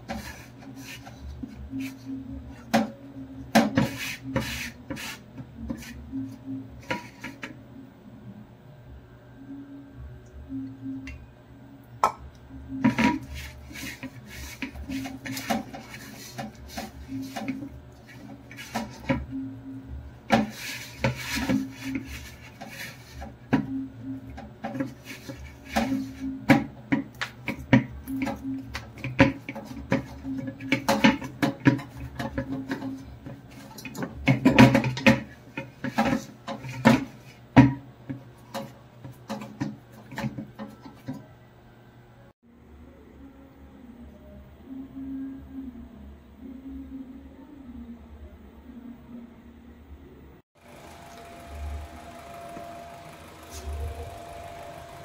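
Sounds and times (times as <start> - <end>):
steady low hum: 0.0 - 40.2, 41.2 - 55.0
utensils knocking and scraping: 12.7 - 19.4, 20.3 - 41.2.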